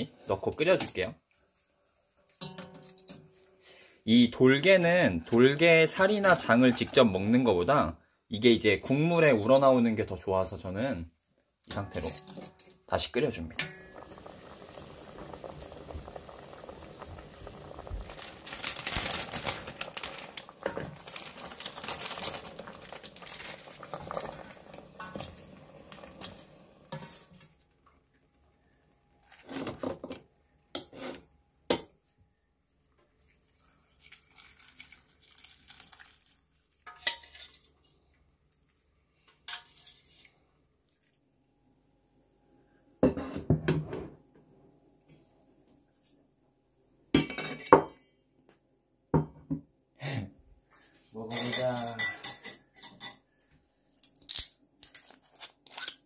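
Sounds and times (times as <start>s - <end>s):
cookware clinks: 2.4s - 3.2s, 51.3s - 53.3s
broth boiling and bubbling: 13.3s - 27.8s, 33.1s - 36.8s.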